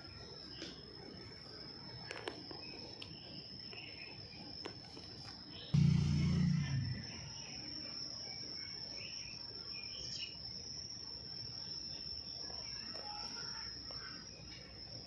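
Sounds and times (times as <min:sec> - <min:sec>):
high-pitched insect trill: 0:05.6 - 0:15.0.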